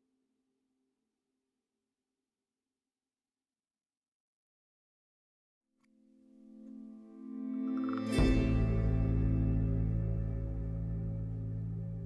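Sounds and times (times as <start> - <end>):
slow ambient music: 5.9 - 12.0.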